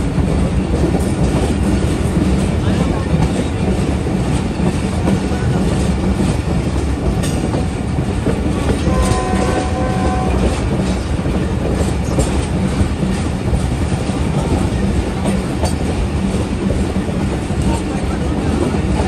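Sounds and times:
train wheels rumbling on rail: 0.0 - 19.0
faint train horn: 8.7 - 10.6.

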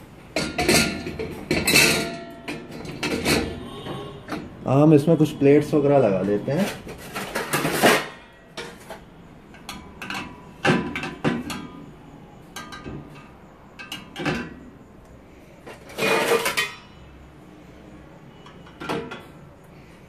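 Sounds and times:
plates clinking in dishwasher rack: 0.4 - 4.4, 6.6 - 8.9, 9.6 - 11.8, 15.9 - 16.9.

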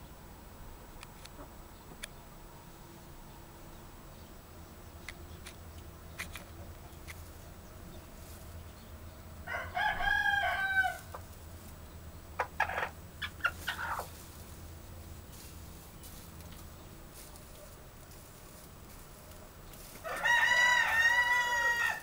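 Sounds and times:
chicken calling: 9.5 - 11.3, 12.4 - 14.3, 20.0 - 22.0.

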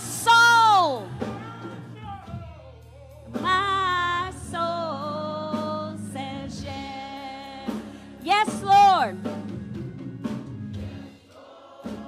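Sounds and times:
woman singing gospel: 0.0 - 2.4, 3.2 - 9.5.

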